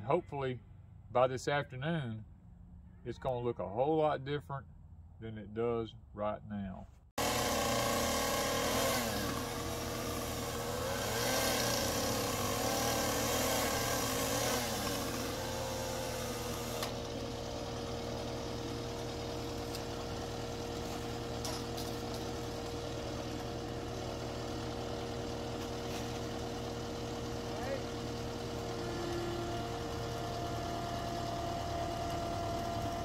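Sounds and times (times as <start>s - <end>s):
diesel engine running: 7.2s - 33.0s.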